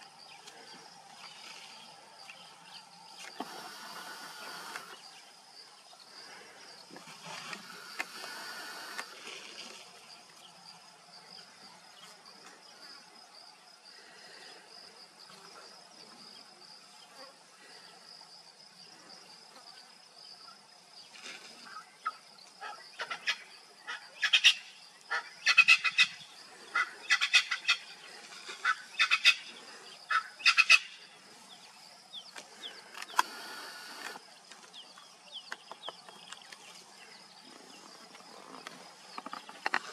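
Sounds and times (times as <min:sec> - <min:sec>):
bird clicking calls: 0:32.3 - 0:34.2
high-pitched insect drone: 0:33.0 - 0:34.3.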